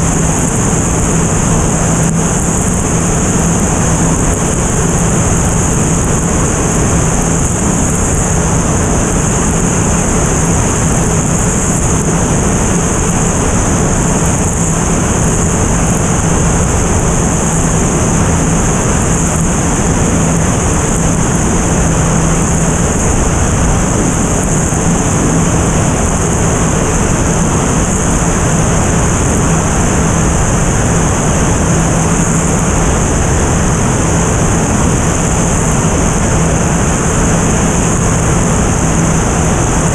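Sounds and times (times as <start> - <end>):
propeller low drone: 0.0 - 39.9
wind rushing over camera: 0.0 - 39.9.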